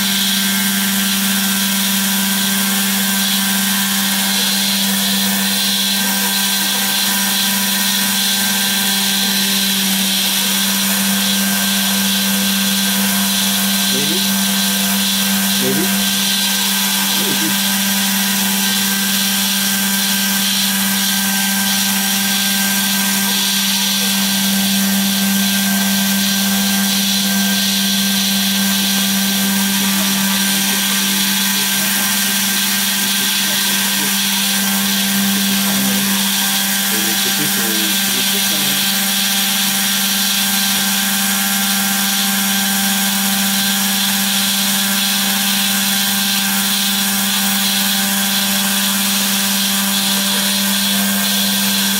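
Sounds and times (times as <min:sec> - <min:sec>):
router spindle cutting foam: 0:00.0 - 0:51.9.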